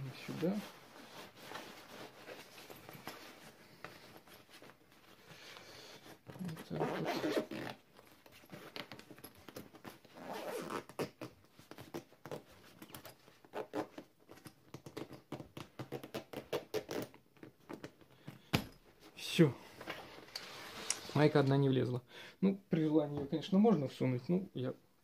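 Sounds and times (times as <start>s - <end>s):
backpack zipper clicking: 6.8s - 7.8s, 10.2s - 11.3s.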